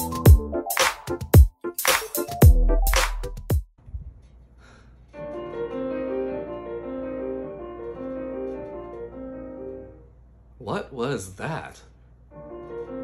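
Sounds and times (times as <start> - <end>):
solo piano chords: 5.2 - 10.1, 12.3 - 13.0.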